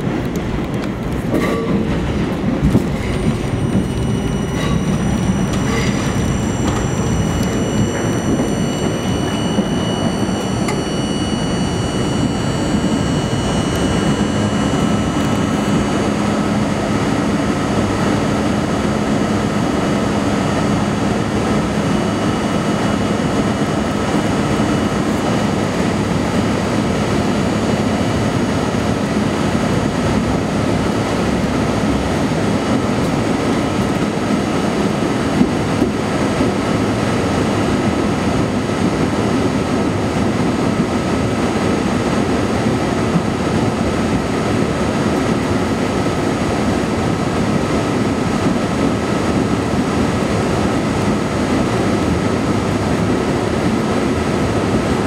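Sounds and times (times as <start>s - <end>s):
steady tones: 0.0s - 19.3s
train wheels rumbling on rails: 0.0s - 55.0s.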